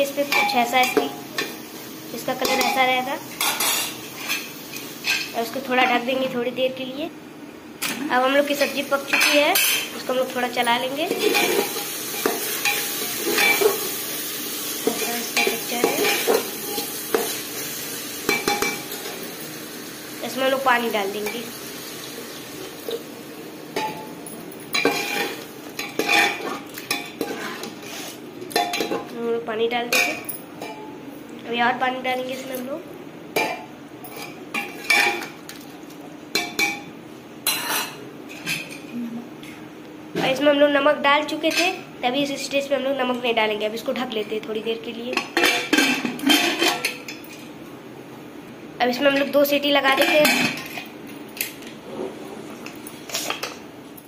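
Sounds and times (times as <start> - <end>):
food sizzling: 0.0 - 6.4, 8.1 - 30.1.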